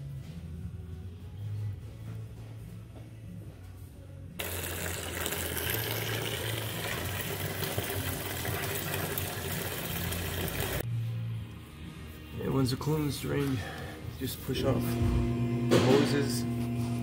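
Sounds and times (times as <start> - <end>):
low background music: 0.0 - 17.0
liquid pouring out: 4.4 - 10.8.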